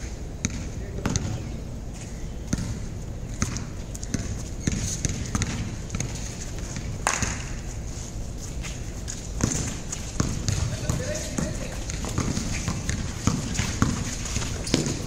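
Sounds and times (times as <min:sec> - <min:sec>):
basketball bouncing on concrete: 0:00.4 - 0:01.4, 0:02.5 - 0:07.6, 0:09.4 - 0:15.0.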